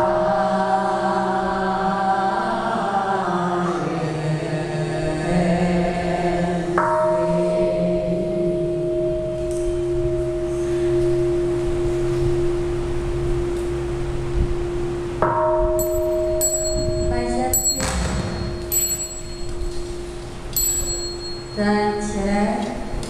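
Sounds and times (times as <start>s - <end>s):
group chanting in unison: 0.0s - 8.4s
bowl bell ringing: 14.6s - 23.0s.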